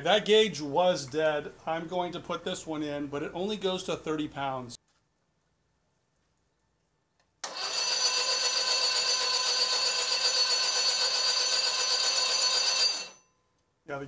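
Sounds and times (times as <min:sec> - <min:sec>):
starter motor whirring: 0:07.4 - 0:09.3.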